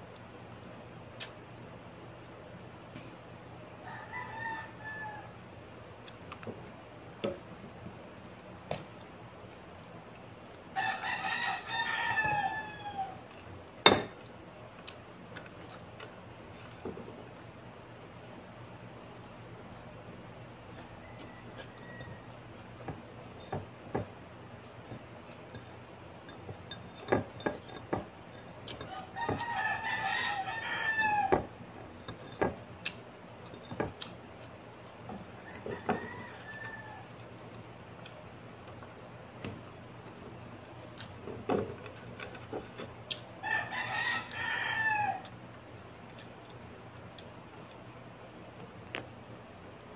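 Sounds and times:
rooster crowing: 0:03.8 - 0:05.4, 0:10.7 - 0:13.3, 0:20.8 - 0:22.4, 0:28.8 - 0:31.6, 0:35.2 - 0:37.2, 0:43.4 - 0:45.4.

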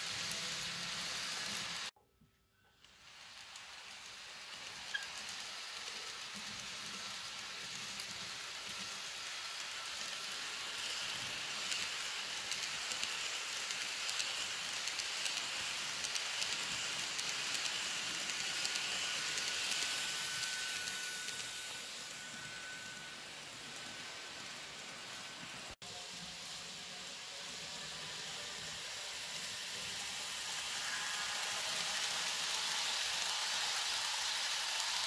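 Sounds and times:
model train wheels on rails: 0:00.0 - 0:01.9, 0:02.6 - 0:35.0
rapid small clicks: 0:10.9 - 0:21.4
faint high whine: 0:16.6 - 0:34.0.

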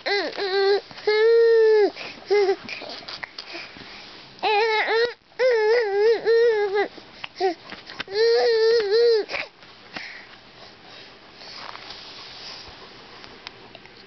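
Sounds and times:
baby crying: 0:00.0 - 0:03.0, 0:04.4 - 0:09.5.

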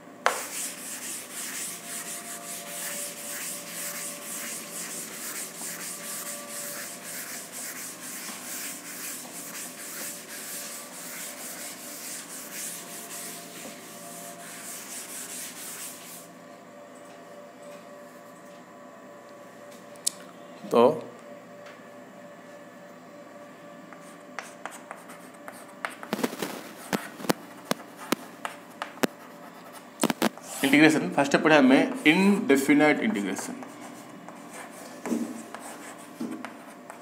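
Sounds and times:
duster rubbing chalkboard: 0:00.2 - 0:16.3, 0:24.0 - 0:30.9, 0:33.4 - 0:37.0.

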